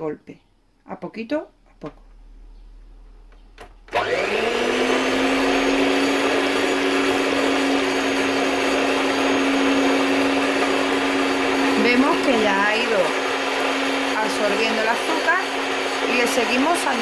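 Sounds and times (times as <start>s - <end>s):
stand mixer motor running: 3.9s - 17.0s.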